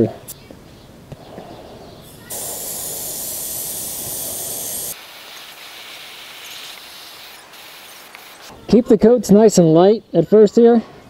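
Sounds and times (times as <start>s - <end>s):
faint air hiss: 1.1s - 8.7s
airbrush spraying hiss: 2.0s - 8.5s.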